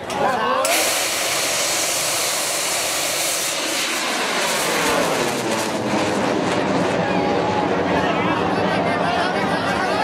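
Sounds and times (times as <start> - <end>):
rocket motor hissing rush: 0.6 - 7.1.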